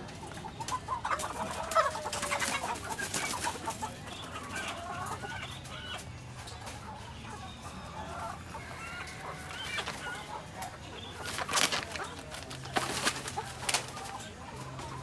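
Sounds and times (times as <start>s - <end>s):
hens clucking: 0.0s - 15.0s
loud scuffling: 9.4s - 10.3s, 11.2s - 14.0s.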